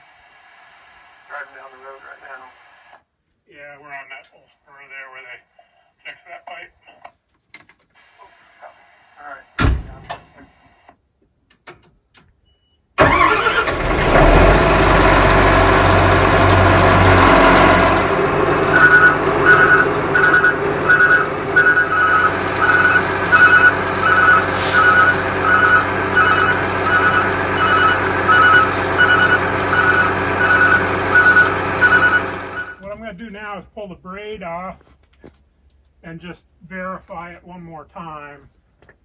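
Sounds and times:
large engine running: 0:13.0 - 0:32.8
electronic reversing beeper: 0:15.0 - 0:32.8.

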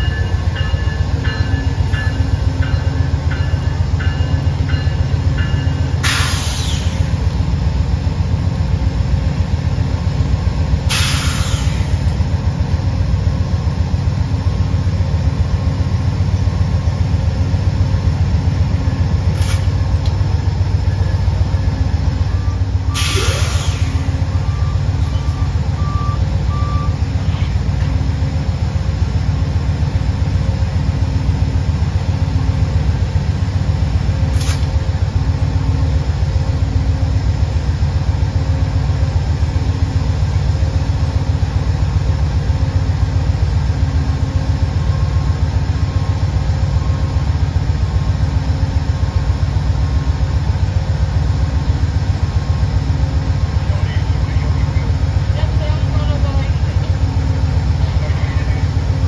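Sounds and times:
locomotive engine drone: 0:00.0 - 0:59.0
low beep: 0:20.9 - 0:23.4, 0:24.2 - 0:27.1.

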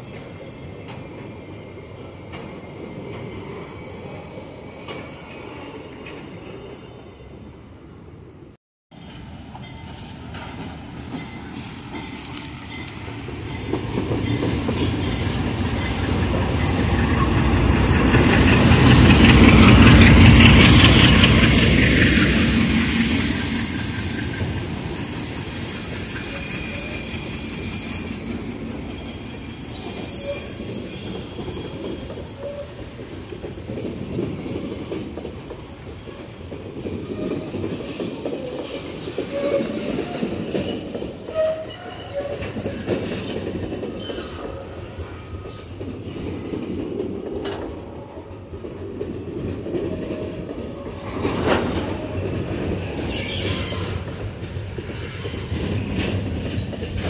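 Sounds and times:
train wheels rumbling on rail: 0:08.9 - 0:57.0
diesel locomotive engine: 0:09.0 - 0:37.8
wheel squeal: 0:23.7 - 0:44.6, 0:53.1 - 0:54.0.

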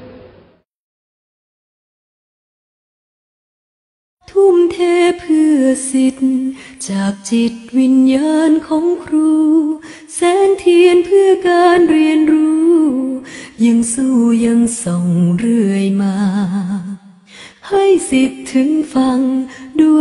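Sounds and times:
woman singing slow melody: 0:04.2 - 0:20.0.

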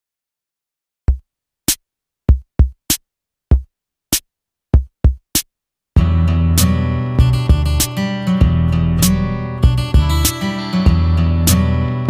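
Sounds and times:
drum machine kick drum: 0:01.1 - 0:03.7, 0:04.8 - 0:06.2, 0:07.2 - 0:08.7, 0:09.6 - 0:11.6.

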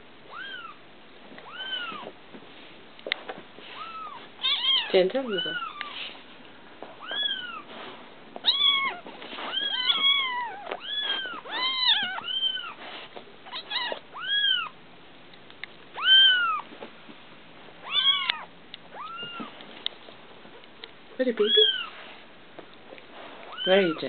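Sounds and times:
kittens mewing: 0:08.4 - 0:12.8, 0:16.0 - 0:16.6.

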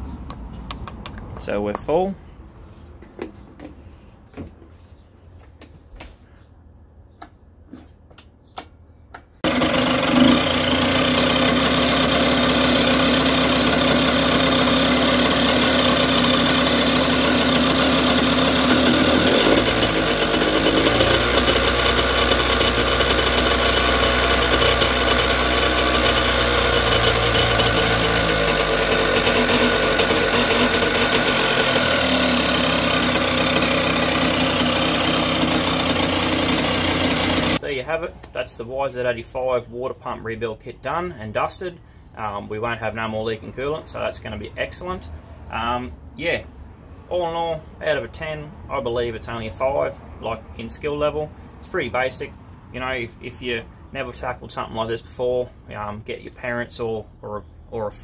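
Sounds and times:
two-stroke engine idling: 0:09.4 - 0:37.6.

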